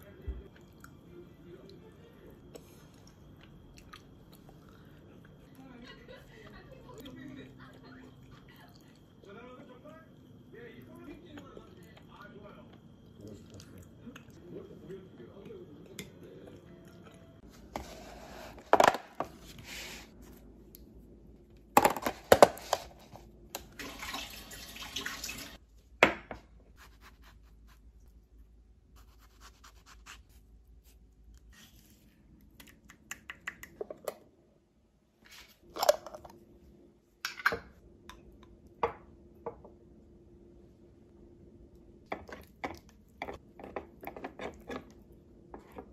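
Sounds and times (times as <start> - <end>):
rustling and scraping: 17.5 - 20.5.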